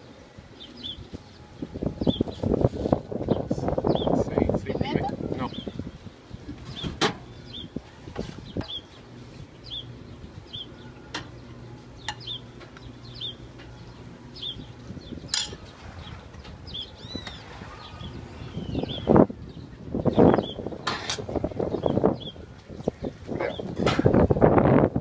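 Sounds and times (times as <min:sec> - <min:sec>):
bird chirping: 0:00.0 - 0:02.6, 0:03.2 - 0:20.8, 0:21.5 - 0:23.8
metal utensils clinking: 0:15.3 - 0:15.6.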